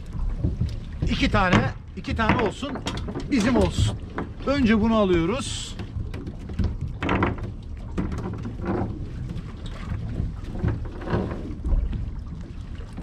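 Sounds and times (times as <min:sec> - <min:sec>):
knocks and rattles of handling: 0:00.0 - 0:12.0.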